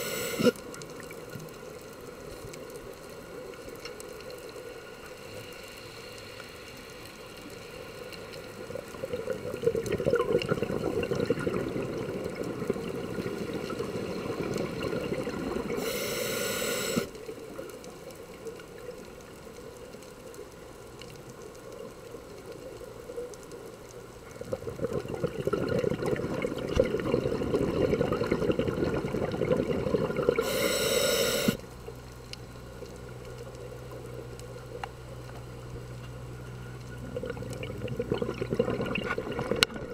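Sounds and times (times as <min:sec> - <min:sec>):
regulator hiss: 0:00.0 - 0:00.7, 0:13.2 - 0:17.6, 0:30.3 - 0:31.9
underwater water noise: 0:00.0 - 0:39.9
diver exhaling bubbles: 0:09.0 - 0:17.1, 0:24.3 - 0:31.6, 0:37.0 - 0:39.9.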